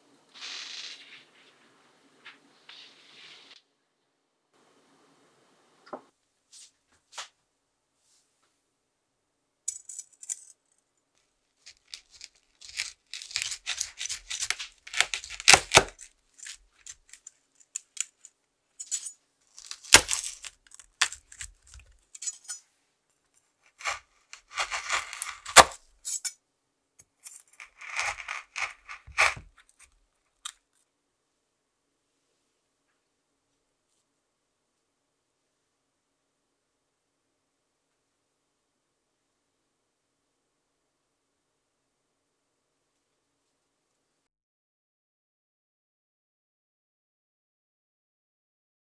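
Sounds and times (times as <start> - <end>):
knife crunching through nougat: 11.6 - 22.5, 23.7 - 25.8, 27.2 - 29.9.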